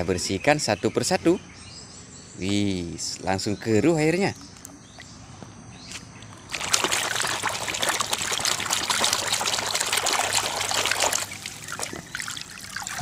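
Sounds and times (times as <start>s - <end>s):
water splashing in a tub: 6.3s - 13.0s.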